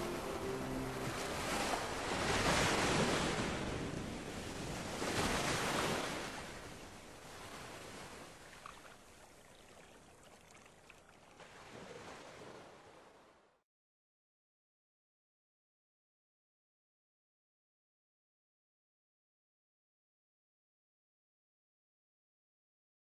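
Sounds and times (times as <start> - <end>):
surf-like rushing noise: 0.0 - 7.9.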